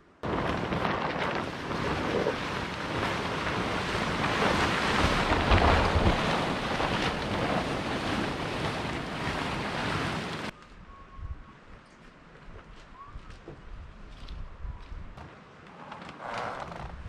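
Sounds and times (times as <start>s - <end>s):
plastic tarpaulin rustling and crackling: 0.2s - 10.6s, 15.2s - 17.0s
wind buffeting microphone: 0.2s - 15.3s.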